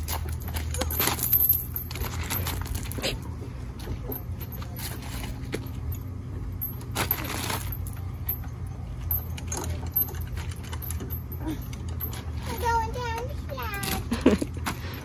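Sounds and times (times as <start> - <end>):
steady low rumble: 0.0 - 15.0
swing chains clinking and rattling: 0.0 - 15.0.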